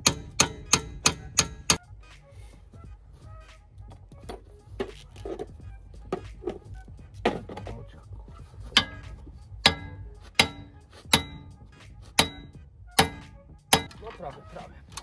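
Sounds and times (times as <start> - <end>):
hammer striking steel: 0.0 - 1.8, 8.7 - 11.6, 12.2 - 14.0.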